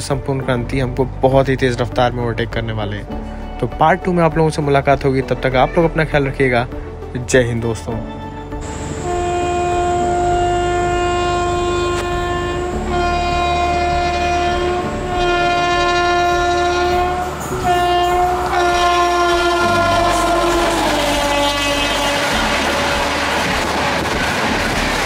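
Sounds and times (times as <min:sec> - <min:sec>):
train rumbling on track: 0:07.9 - 0:25.0
train horn blasts: 0:08.2 - 0:25.0.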